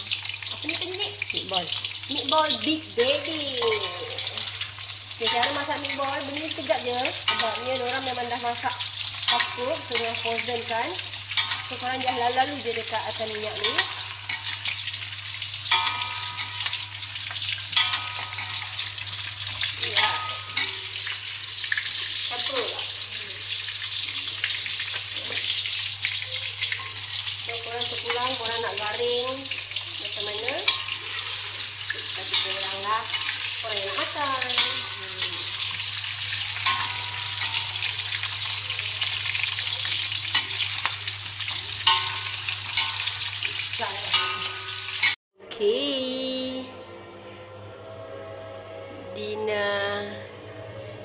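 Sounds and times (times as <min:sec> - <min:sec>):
meatballs sizzling in oil: 0:00.0 - 0:45.2
metal spatula scraping wok: 0:30.0 - 0:39.5, 0:40.3 - 0:45.2.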